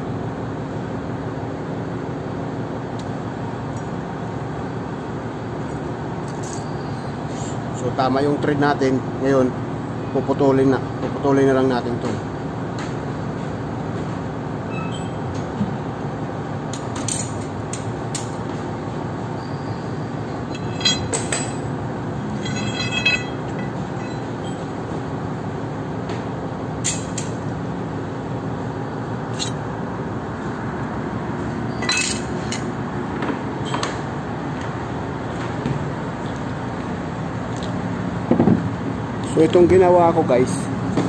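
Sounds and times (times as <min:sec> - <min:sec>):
sharp metallic clinks: 0:06.3 - 0:06.8, 0:20.4 - 0:24.8, 0:29.3 - 0:29.6
short ringing squeal: 0:06.4 - 0:07.6, 0:14.7 - 0:15.3, 0:19.4 - 0:24.8
metal lathe running: 0:20.2 - 0:24.9.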